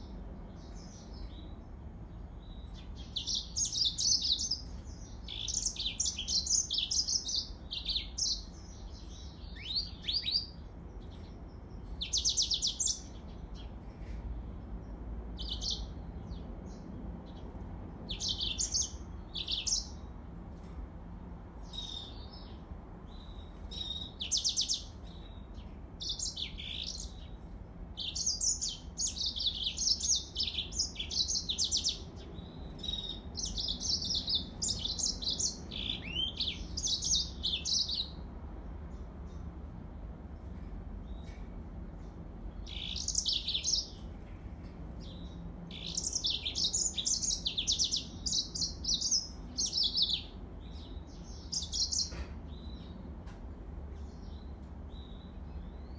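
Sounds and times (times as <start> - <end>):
canary twittering: 45.2 - 52.2.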